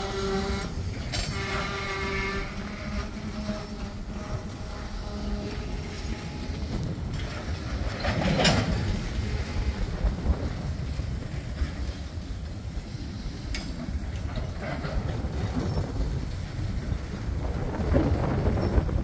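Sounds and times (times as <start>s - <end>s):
train wheels rumbling on rails: 0.0s - 19.0s.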